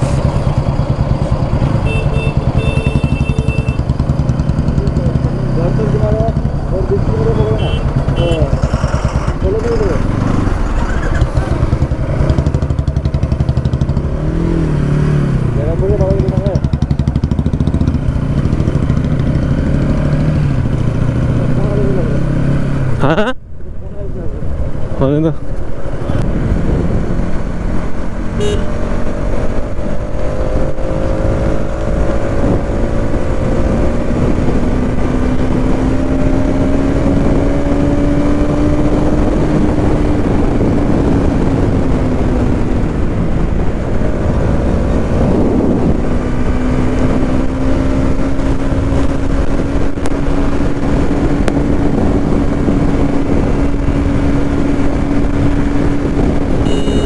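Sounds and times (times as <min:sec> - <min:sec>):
motorcycle engine cruising: 0:00.0 - 0:57.0
wind rush over microphone: 0:24.4 - 0:28.2, 0:28.8 - 0:57.0.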